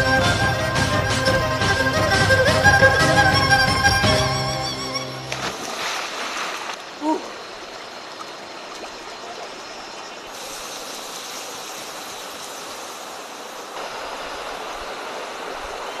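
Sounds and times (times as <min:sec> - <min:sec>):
river water rushing: 0:00.0 - 0:16.0
steam hissing from doused embers: 0:10.3 - 0:15.0.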